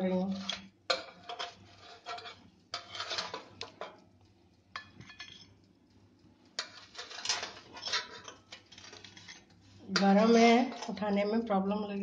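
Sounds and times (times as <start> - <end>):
metal oven tray scraping: 0.0 - 3.6, 6.6 - 11.2.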